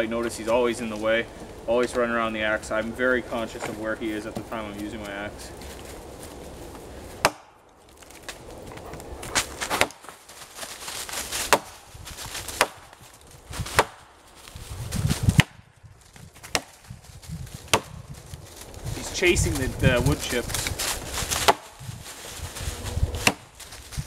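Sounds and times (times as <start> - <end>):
axe chopping log: 7.1 - 8.4, 9.2 - 10.2, 11.3 - 13.0, 13.6 - 14.2, 15.3 - 15.6, 16.4 - 16.8, 17.6 - 18.0, 21.4 - 21.8, 23.2 - 23.5.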